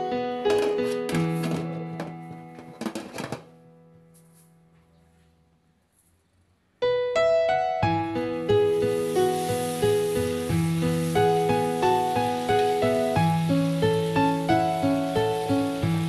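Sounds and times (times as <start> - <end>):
gentle piano music: 0.0 - 5.6, 6.7 - 16.0.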